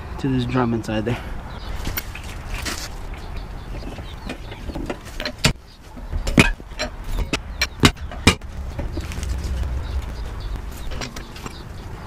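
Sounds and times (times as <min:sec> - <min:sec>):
low rumble: 0:07.5 - 0:12.0.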